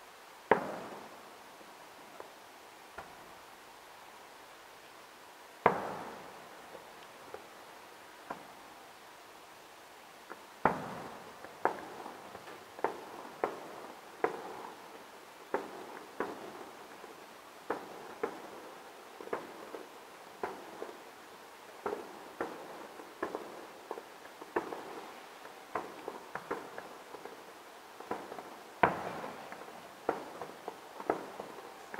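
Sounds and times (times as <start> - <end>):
fireworks bangs with echo: 0.5 - 1.2, 5.6 - 6.9, 10.6 - 14.9, 15.5 - 21.0, 21.7 - 31.9.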